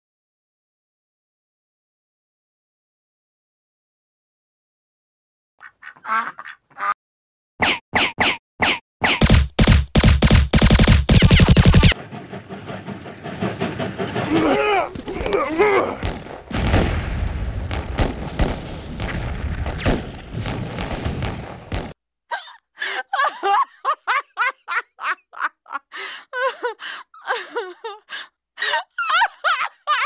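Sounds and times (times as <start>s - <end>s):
rapid duck quacks: 5.6s - 7.0s
cartoon explosions and pops: 7.6s - 12.0s, 14.9s - 22.0s.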